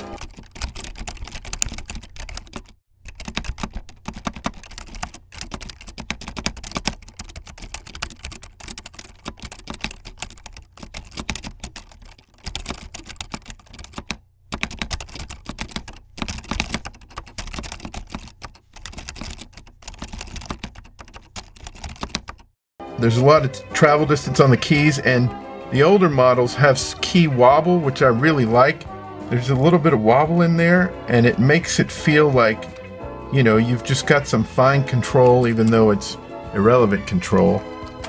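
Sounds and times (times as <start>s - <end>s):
quiet keyboard typing: 0.0s - 22.6s, 33.6s - 36.0s, 36.7s - 38.0s.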